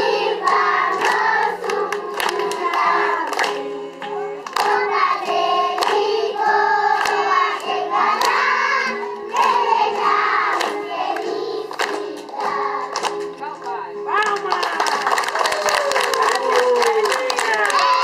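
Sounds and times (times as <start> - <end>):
children singing: 0.0 - 3.9, 4.6 - 12.9
hand clapping: 0.4 - 6.2, 6.9 - 8.5, 9.3 - 18.0.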